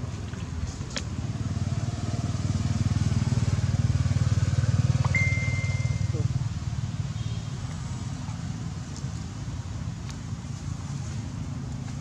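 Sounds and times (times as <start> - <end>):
small engine pulsing: 5.0 - 6.2.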